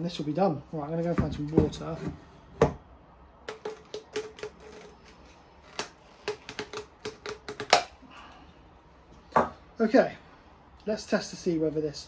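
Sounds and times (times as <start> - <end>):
plastic clicks and taps: 5.7 - 7.9.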